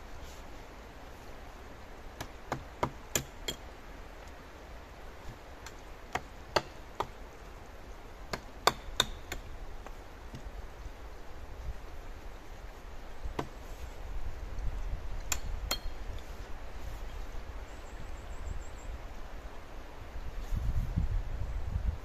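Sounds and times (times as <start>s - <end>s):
tool striking wood: 2.2s - 3.6s, 8.3s - 9.5s.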